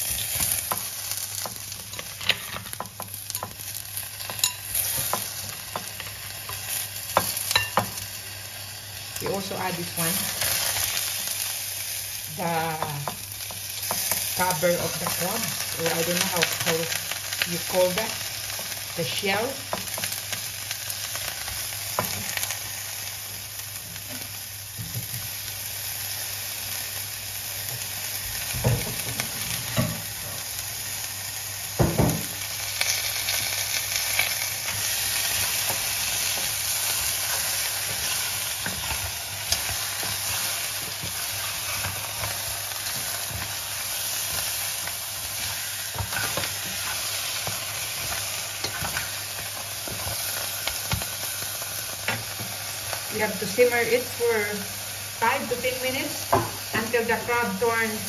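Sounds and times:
food sizzling in a frying pan: 0:00.0 - 0:58.0.

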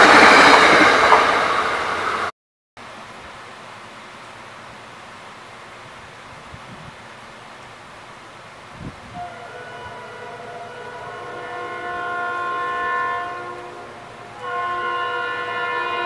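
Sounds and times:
train air horn blasts: 0:09.0 - 0:16.0.

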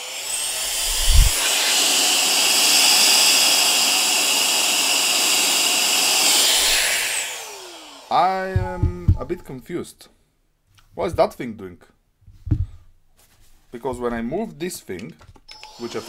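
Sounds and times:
small vacuum motor whine: 0:00.0 - 0:08.1, 0:15.5 - 0:16.0
low thump: 0:08.6 - 0:09.4, 0:12.4 - 0:12.8.

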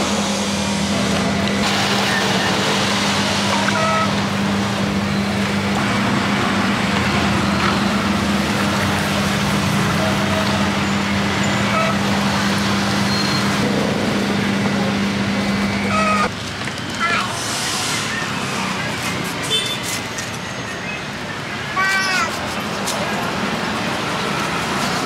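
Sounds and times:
low motor hum: 0:00.0 - 0:16.4
street traffic: 0:00.0 - 0:25.0.

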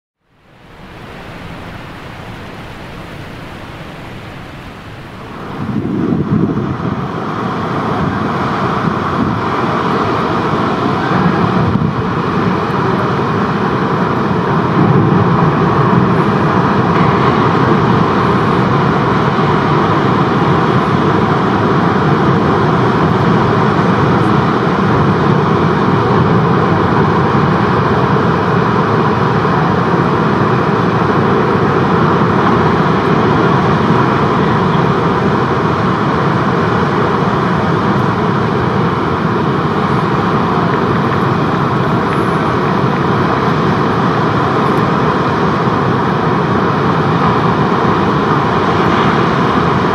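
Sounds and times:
heavy surf roaring: 0:00.2 - 0:49.9.

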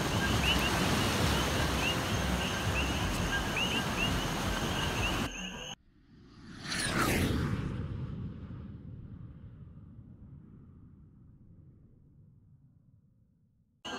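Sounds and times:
ocean surf on rocks: 0:00.0 - 0:05.3.

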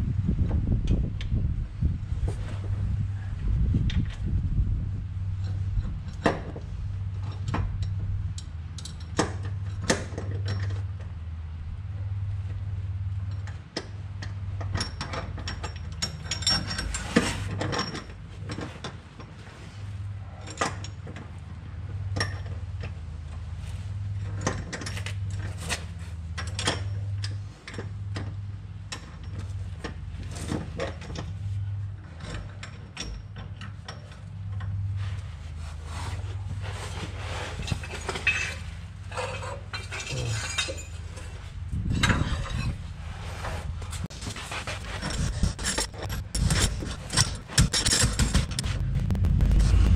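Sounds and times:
low hum: 0:00.0 - 0:09.8, 0:43.7 - 0:49.9
hand tools clicking and clanking: 0:44.0 - 0:48.7.

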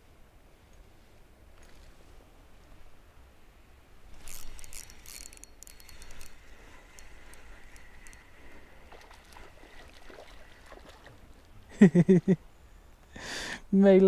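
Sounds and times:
spinning reel clicking and whirring: 0:04.2 - 0:08.6
reel ticking: 0:04.2 - 0:10.8.

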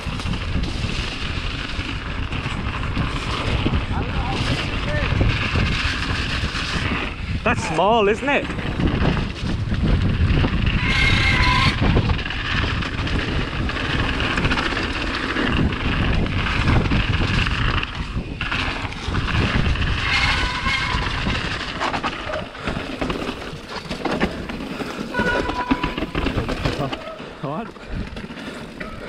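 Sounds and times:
wind rushing over microphone: 0:00.0 - 0:23.7
bike rattling: 0:00.0 - 0:29.0
tyres rolling over dirt and rock: 0:00.0 - 0:29.0.

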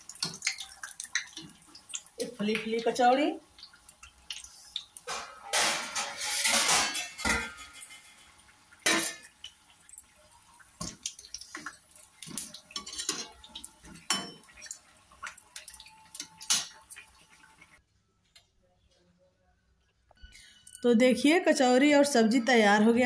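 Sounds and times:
oil sizzling: 0:00.0 - 0:17.8
skimmer knocking and scraping on pan: 0:05.0 - 0:09.3, 0:10.8 - 0:14.5.

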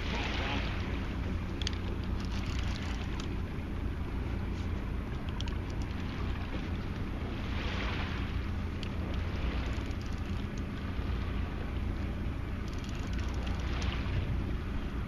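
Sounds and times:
boat engine running low: 0:00.0 - 0:15.0.

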